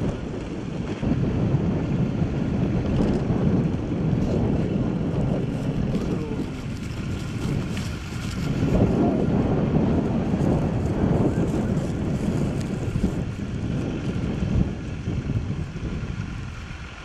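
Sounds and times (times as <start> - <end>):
wind buffeting microphone: 0.0 - 17.0
faint voices: 5.6 - 7.0.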